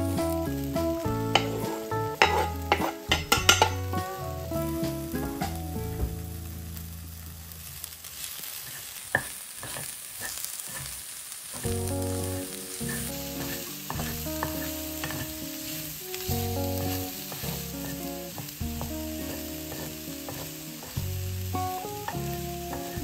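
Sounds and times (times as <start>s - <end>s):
plucked chords background music: 0.0s - 7.1s, 11.7s - 23.0s
food sizzling in a pan: 0.0s - 23.0s.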